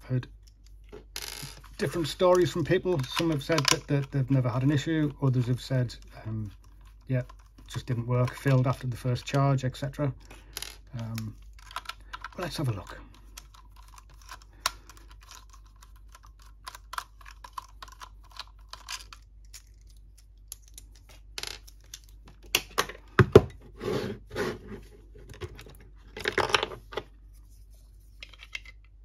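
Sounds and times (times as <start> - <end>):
plastic casing clicks and crackles: 10.2 - 12.6, 13.2 - 23.0.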